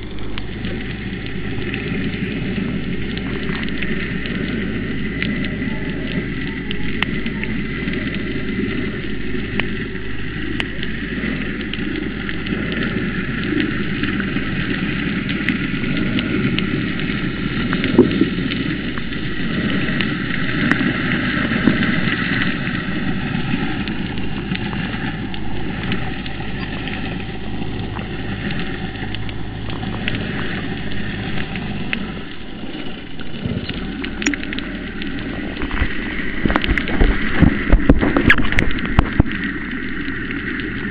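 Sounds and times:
low steady hum: 0.0s - 40.9s
underwater crackling hiss: 0.0s - 40.9s
small clicks: 27.6s - 40.8s.

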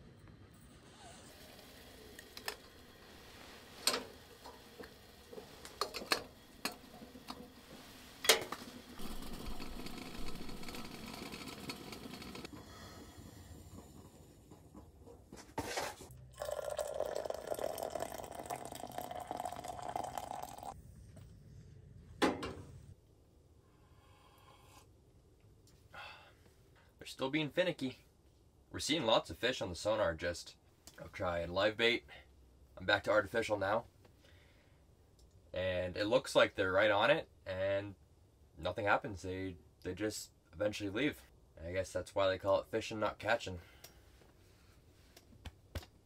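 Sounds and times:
water pouring into container: 16.4s - 20.8s.

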